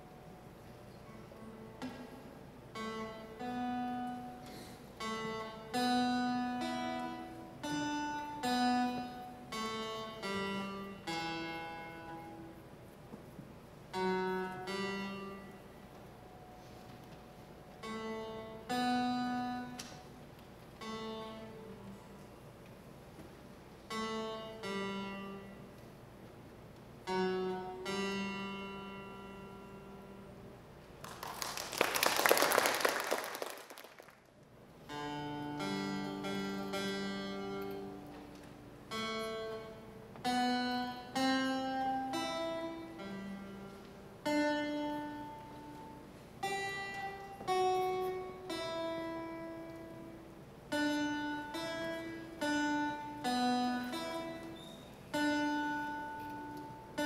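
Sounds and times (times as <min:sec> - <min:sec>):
fingerstyle acoustic guitar: 0:00.8 - 0:30.3, 0:34.8 - 0:57.0
applause: 0:31.0 - 0:34.4.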